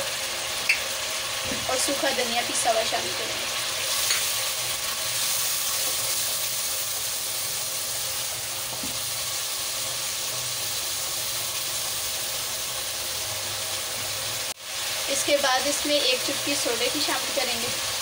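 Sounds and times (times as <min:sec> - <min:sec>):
gravy sizzling and bubbling: 0:00.0 - 0:18.0
spatula stirring in a wok: 0:03.6 - 0:12.4.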